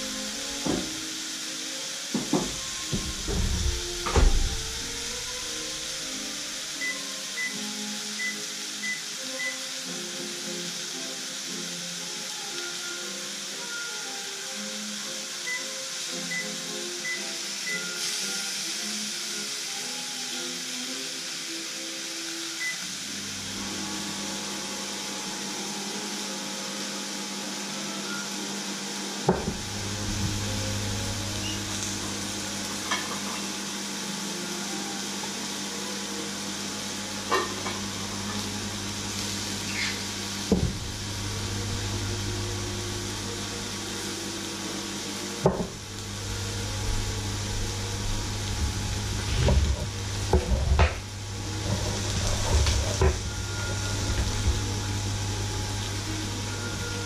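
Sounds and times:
meat sizzling in a grill pan: 0.0s - 57.0s
low hum: 29.5s - 32.8s, 37.9s - 43.9s, 45.7s - 57.0s.

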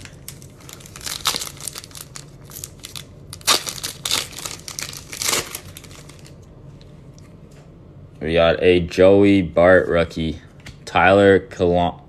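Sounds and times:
foil wrapper crinkling and tearing: 0.0s - 6.4s.

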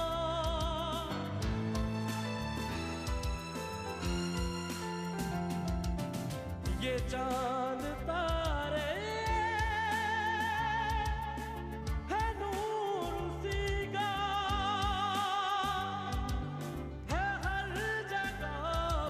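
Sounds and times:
man singing into a microphone: 0.0s - 1.6s, 6.7s - 19.0s
instrumental backing: 0.0s - 19.0s.

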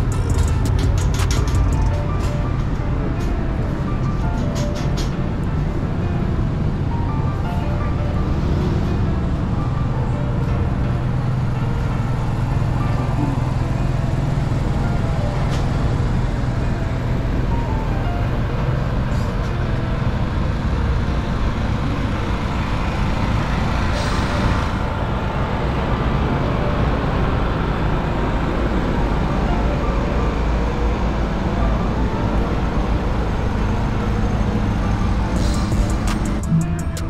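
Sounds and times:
low hum: 0.0s - 4.4s
traffic rumble: 0.0s - 37.0s.

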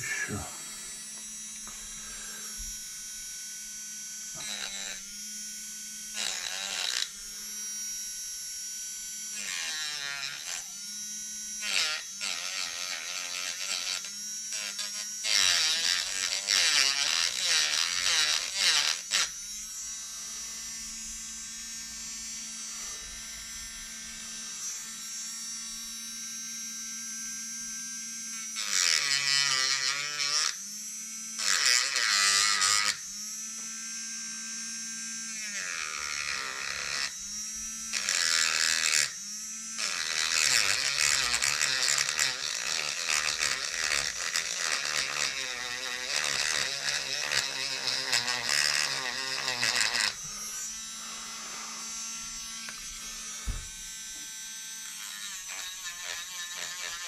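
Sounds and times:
rotary tool grinding: 0.0s - 57.0s.

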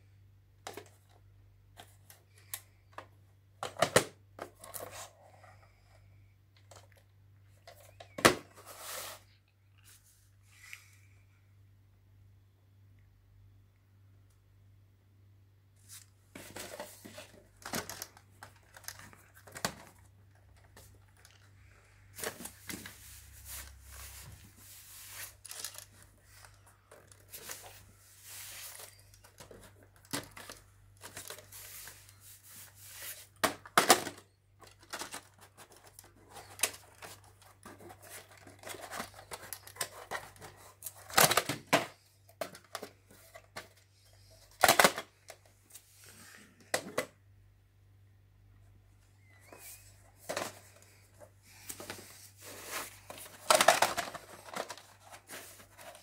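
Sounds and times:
cassettes and sleeves rustling: 15.8s - 33.7s, 49.2s - 56.0s.

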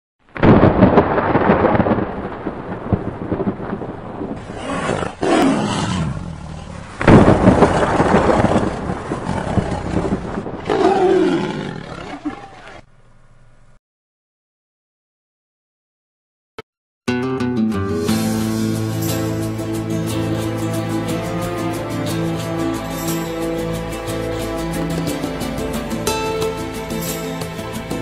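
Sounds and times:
thunder crashes: 0.4s - 11.2s
tiger roaring: 4.4s - 6.9s, 7.6s - 12.8s.

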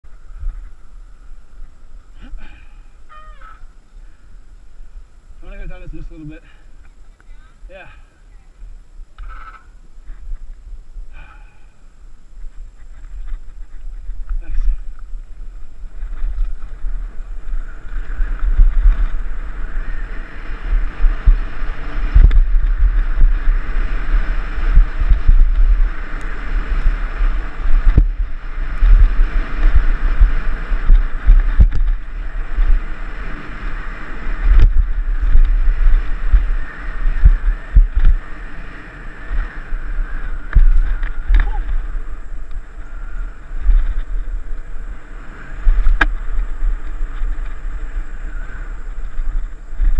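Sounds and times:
rolling tyre noise: 0.0s - 49.9s
wind buffeting microphone: 3.4s - 49.9s
knocks from trail bumps: 27.7s - 32.8s, 34.4s - 38.3s, 40.5s - 41.8s, 45.6s - 47.6s.

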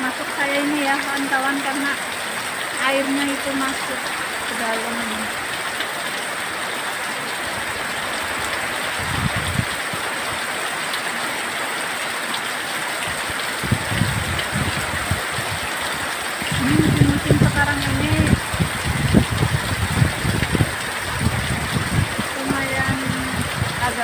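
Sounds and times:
heavy rain pouring: 0.0s - 24.0s
wind buffeting microphone: 7.5s - 10.0s, 13.0s - 24.0s.

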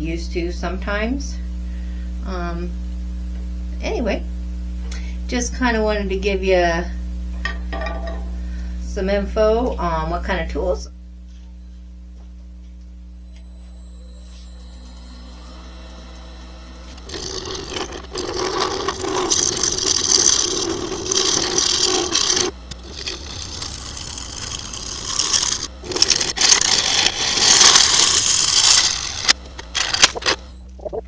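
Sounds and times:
lathe motor hum: 13.2s - 30.5s
turning tool scraping wood: 16.9s - 30.4s.

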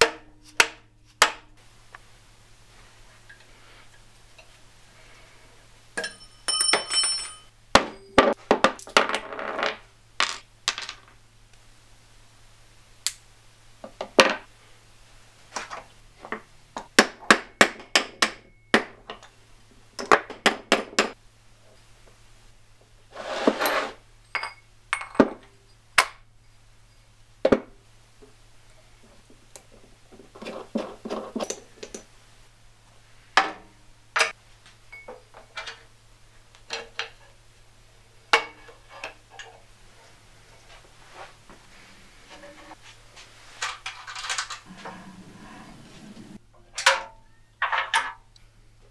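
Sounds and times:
metal tools clinking on workbench: 6.0s - 11.0s, 24.3s - 25.5s, 30.4s - 32.1s
low hum: 44.4s - 46.6s.

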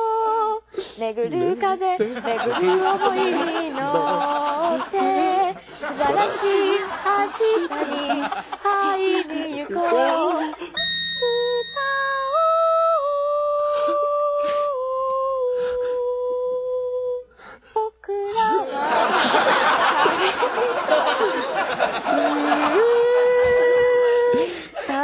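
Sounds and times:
woman singing a cappella: 0.0s - 18.7s, 22.1s - 25.0s
mixed voices: 1.0s - 10.8s, 18.2s - 24.4s
laughter: 2.0s - 10.8s, 18.4s - 24.0s.

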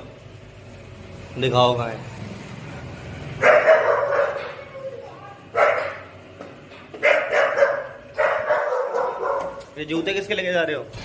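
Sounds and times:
dog barking: 3.4s - 4.7s, 5.5s - 6.1s, 7.0s - 9.7s.

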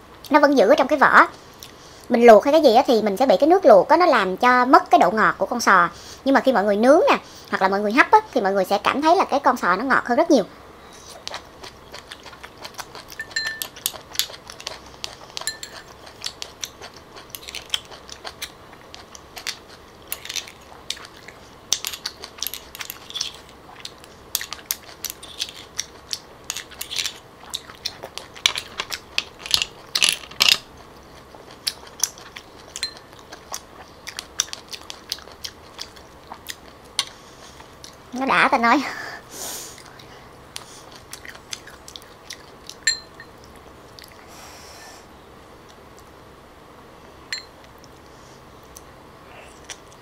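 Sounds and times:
person chewing: 11.0s - 38.0s, 39.7s - 44.3s, 47.6s - 50.0s
metal spoon scraping shells: 21.7s - 23.5s, 28.4s - 30.6s.

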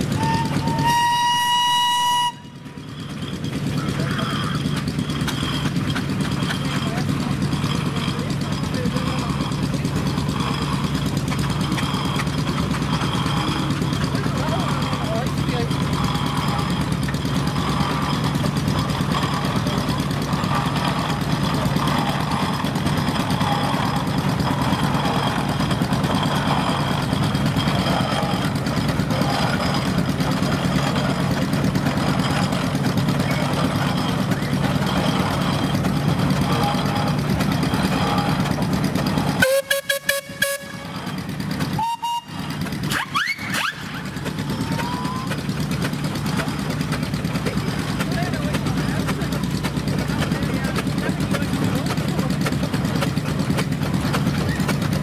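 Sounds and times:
steam engines humming: 0.0s - 55.0s
steam whistle toot: 0.1s - 2.8s, 39.4s - 43.9s.

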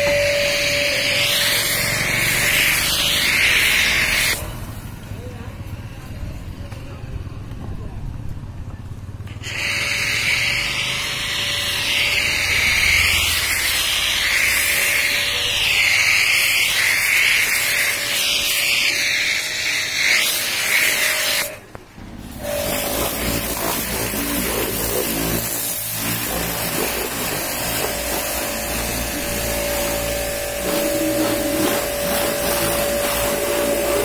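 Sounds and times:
pressure washer jet hissing: 0.0s - 4.7s, 9.3s - 34.0s
washer pump humming: 22.4s - 34.0s.

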